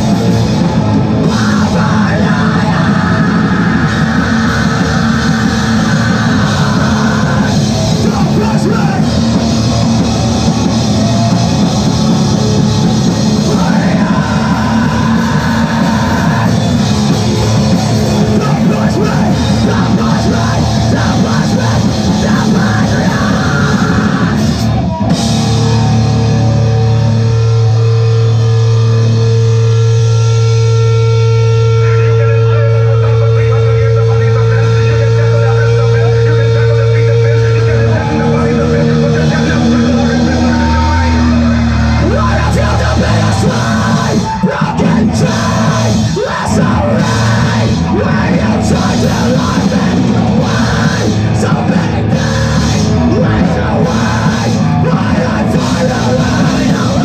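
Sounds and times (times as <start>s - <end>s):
heavy rock band playing: 0.0s - 57.0s.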